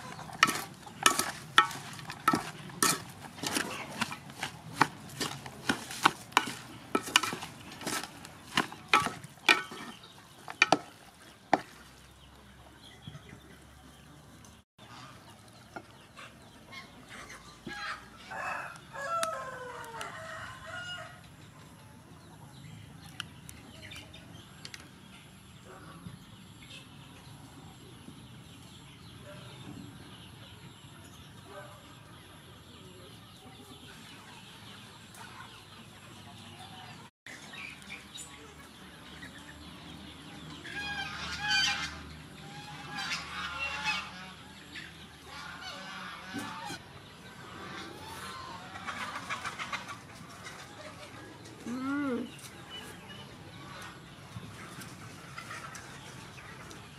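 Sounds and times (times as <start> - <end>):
rooster crowing: 18.3 - 21.2.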